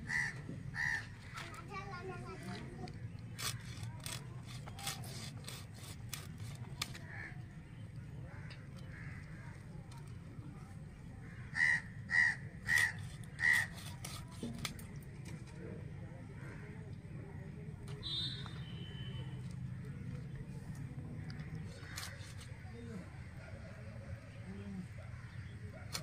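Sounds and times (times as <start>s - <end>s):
crow cawing: 0.0s - 1.6s, 7.0s - 7.5s, 8.2s - 9.6s, 11.2s - 13.8s.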